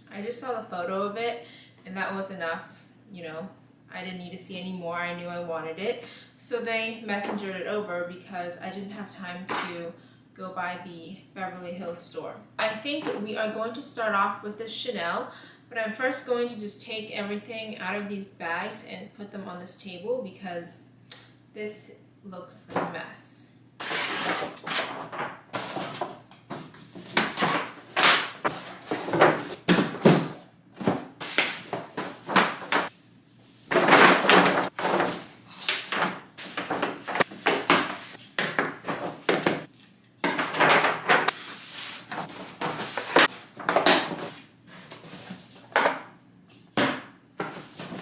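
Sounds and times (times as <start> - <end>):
paper bags rustling: 23.8 - 32.9, 33.7 - 38.2
cardboard boxes knocking on table: 25.0 - 32.9.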